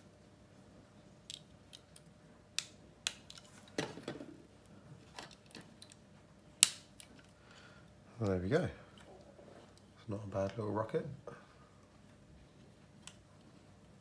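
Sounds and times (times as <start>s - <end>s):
sharp plastic snap: 6.6s - 7.1s.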